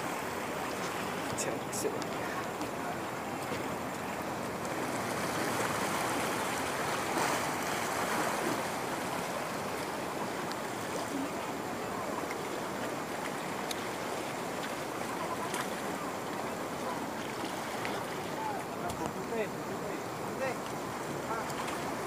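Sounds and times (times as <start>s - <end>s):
water washing against boulders: 0.0s - 22.0s.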